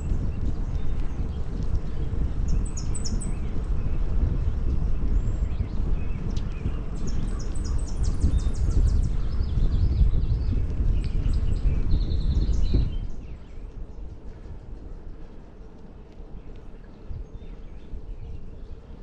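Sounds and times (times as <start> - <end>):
bicycle rolling on pavement: 0.0 - 19.0
songbirds calling: 0.0 - 19.0
wind buffeting microphone: 0.0 - 19.0.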